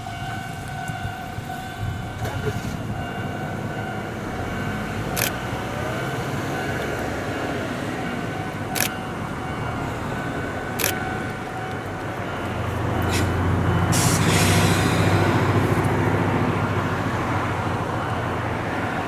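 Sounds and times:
electric trains humming: 0.0s - 19.0s
sharp clicks: 10.8s - 11.4s.

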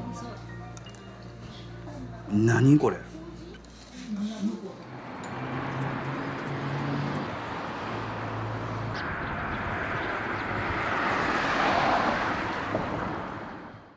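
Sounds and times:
passing vehicle road noise: 3.1s - 13.9s.

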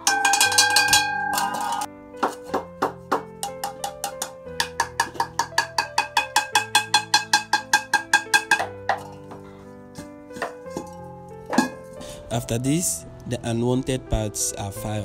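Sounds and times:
plucked bell-like notes: 0.0s - 1.9s.

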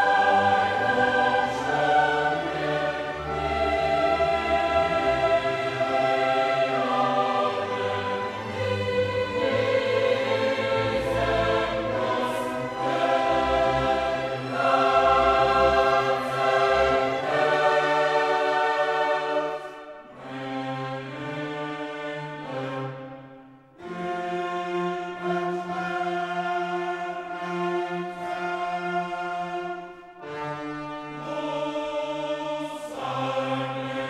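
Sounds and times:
choral and orchestral music: 0.0s - 34.0s.

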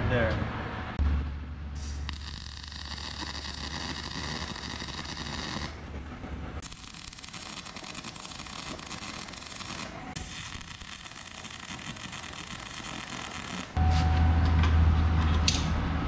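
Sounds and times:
welding arc sizzling: 1.8s - 5.8s, 6.6s - 13.8s.

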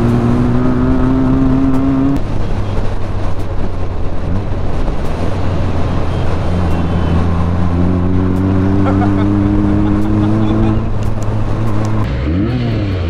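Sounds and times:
motorcycle engine under way: 0.0s - 2.8s, 5.5s - 13.0s
wind rushing over microphone: 0.0s - 12.1s.

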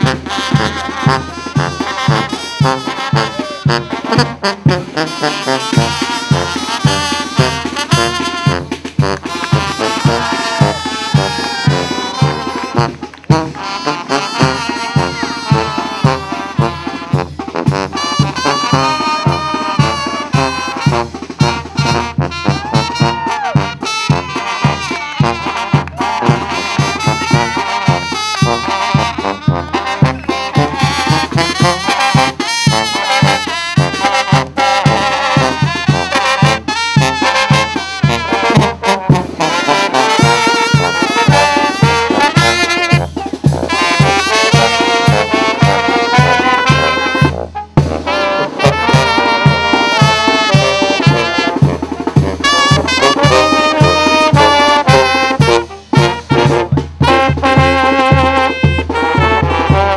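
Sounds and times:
brass band playing: 0.0s - 59.9s
drum beat: 0.0s - 59.9s
trumpets playing melody: 0.0s - 59.9s
sousaphone bass line: 24.1s - 31.8s.

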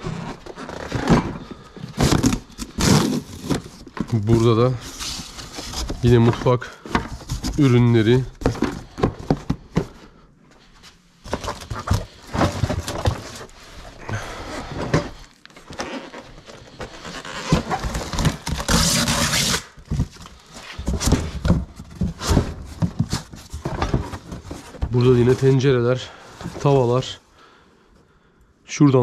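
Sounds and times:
cardboard rustle: 0.0s - 10.0s, 11.2s - 27.0s
cardboard boxes knocking and scraping: 0.3s - 10.1s, 11.2s - 15.2s, 16.5s - 25.6s.

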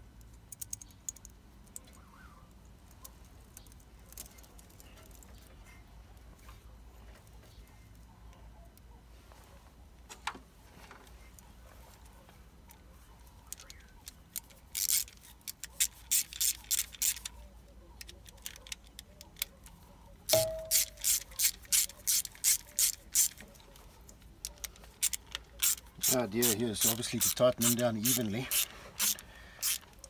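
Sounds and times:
hand ratchet clicking: 14.3s - 17.3s, 20.3s - 23.4s, 24.5s - 30.0s
metallic clink: 20.3s - 21.2s.

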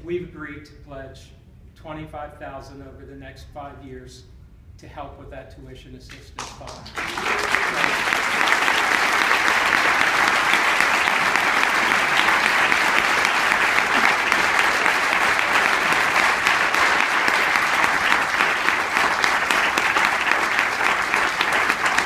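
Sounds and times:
audience applauding: 6.4s - 22.0s.

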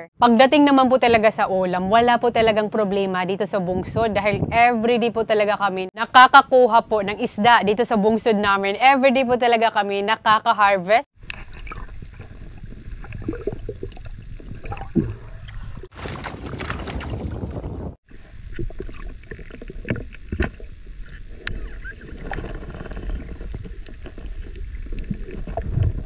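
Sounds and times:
bubbling: 11.2s - 26.0s
underwater rumble: 11.2s - 26.0s.

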